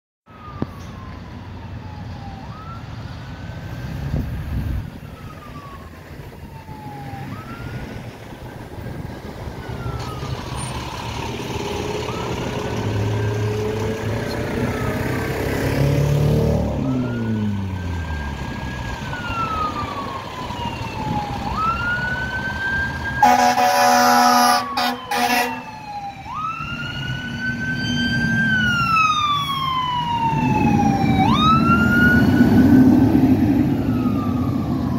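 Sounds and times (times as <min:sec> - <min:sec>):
fire engine siren wailing: 0:00.3 - 0:34.9
truck engine revving: 0:07.0 - 0:25.6
air horn blast: 0:23.2 - 0:25.7.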